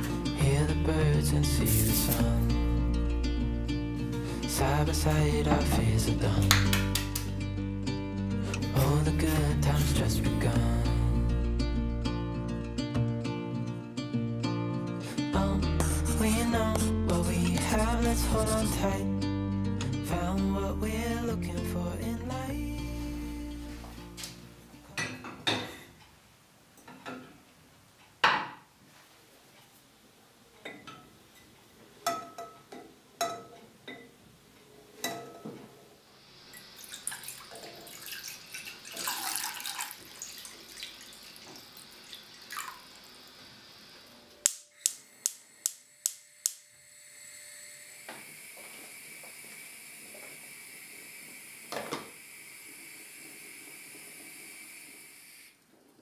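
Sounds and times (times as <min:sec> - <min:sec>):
pot knocks and clinks: 0:32.0 - 0:34.1, 0:35.0 - 0:35.6
gas burner hissing: 0:36.0 - 0:37.6, 0:41.0 - 0:55.7
water pouring into a pot: 0:36.5 - 0:44.0
gas igniter clicking: 0:44.4 - 0:46.6.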